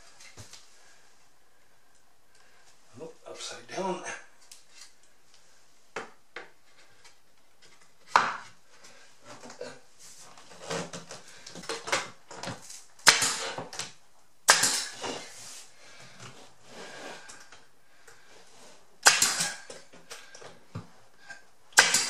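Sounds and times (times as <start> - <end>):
pneumatic nail gun firing: 13.0 - 13.7, 14.5 - 15.1, 19.0 - 19.8, 21.8 - 22.0.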